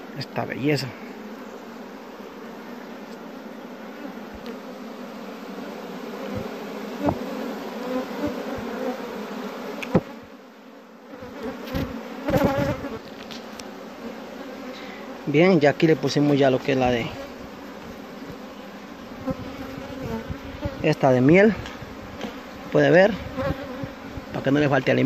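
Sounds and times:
bees buzzing: 0:00.0 - 0:25.0.

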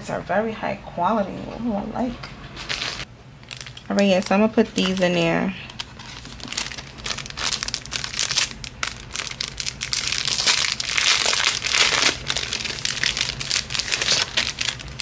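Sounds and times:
plastic packaging crinkling: 0:02.6 - 0:15.0.

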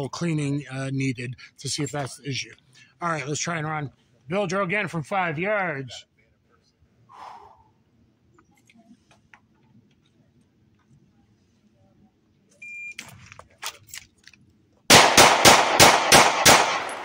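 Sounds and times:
pistol handling clicks: 0:13.6 - 0:17.0
rapid pistol shots: 0:14.9 - 0:17.0.

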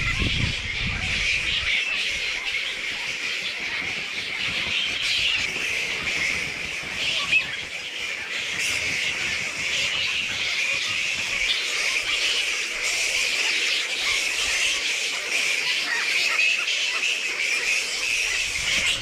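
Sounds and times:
fruit bats squeaking and screeching: 0:00.0 - 0:19.0.

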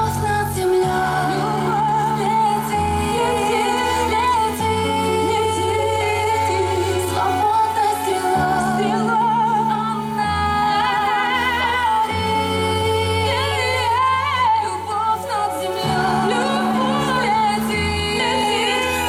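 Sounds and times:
women singing pop vocals: 0:00.0 - 0:19.0.

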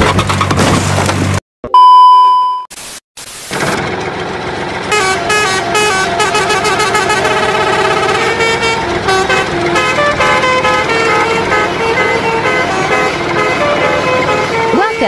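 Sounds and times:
musical vehicle horns: 0:04.8 - 0:15.0.

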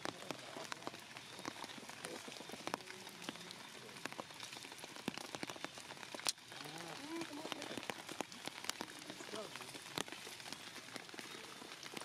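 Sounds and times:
raindrops hitting surfaces: 0:00.0 - 0:12.0
steady rain hiss: 0:00.0 - 0:12.0.

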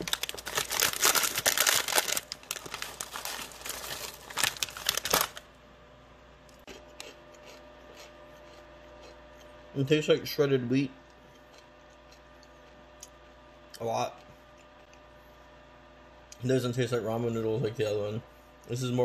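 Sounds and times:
snack packet tearing and rustling: 0:00.0 - 0:05.4.

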